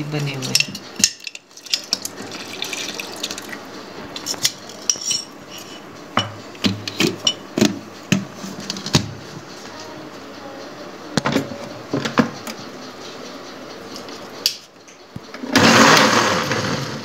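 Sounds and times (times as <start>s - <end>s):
milk pouring into plastic jar: 2.0s - 3.6s.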